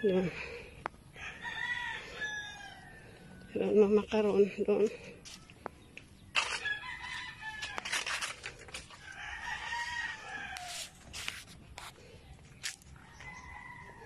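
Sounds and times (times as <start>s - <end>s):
rooster crowing: 1.2s - 3.5s, 6.6s - 7.8s, 8.9s - 11.0s, 13.0s - 14.0s.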